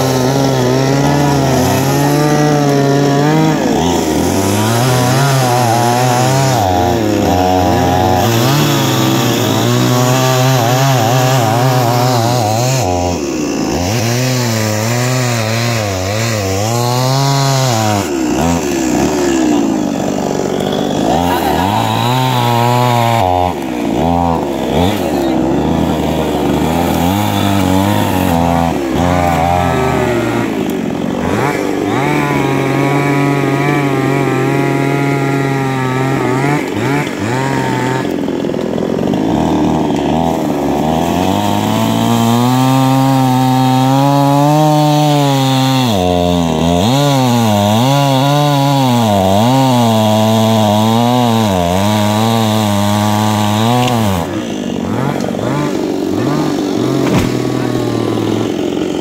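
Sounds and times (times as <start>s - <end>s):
chainsaw revving: 0.0s - 59.0s.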